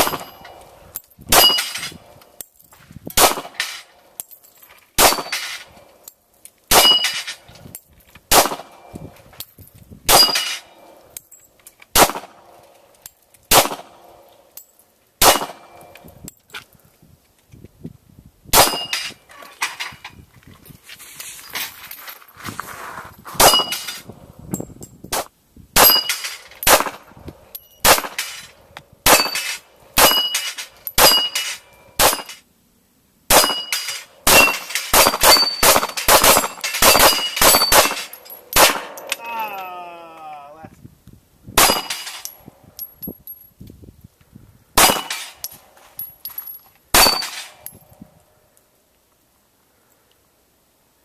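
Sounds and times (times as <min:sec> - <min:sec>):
steel targets ringing: 0:00.0 - 0:00.6, 0:01.3 - 0:01.9, 0:06.7 - 0:07.4, 0:10.1 - 0:10.9, 0:23.4 - 0:24.0, 0:25.8 - 0:26.8, 0:29.1 - 0:32.4, 0:33.3 - 0:39.6, 0:41.6 - 0:43.0, 0:44.8 - 0:47.8
pistol shots: 0:03.2 - 0:03.8, 0:05.0 - 0:05.6, 0:06.7 - 0:07.2, 0:08.3 - 0:08.8, 0:10.1 - 0:10.6, 0:11.9 - 0:12.4, 0:13.5 - 0:14.0, 0:15.2 - 0:15.8, 0:18.6 - 0:19.0, 0:25.8 - 0:27.0, 0:27.8 - 0:28.4, 0:29.0 - 0:30.4, 0:31.0 - 0:32.4, 0:33.3 - 0:39.2, 0:41.6 - 0:42.2, 0:44.8 - 0:45.4.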